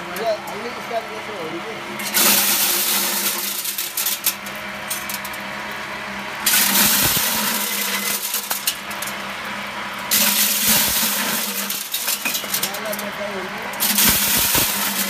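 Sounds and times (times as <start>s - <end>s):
motor hum: 0.0s - 15.0s
kernels streaming rattling hiss: 2.0s - 5.6s, 6.4s - 15.0s.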